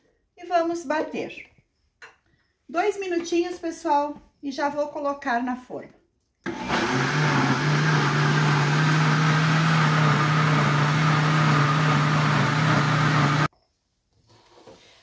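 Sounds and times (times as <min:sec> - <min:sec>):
blender whirring: 0:06.5 - 0:13.5.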